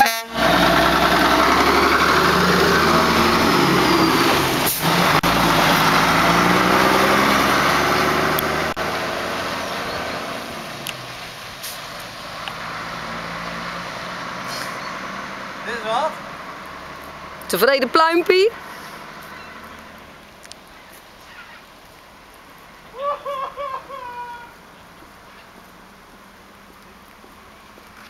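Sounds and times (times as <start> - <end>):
diesel truck engine driving past: 0.0 - 20.2.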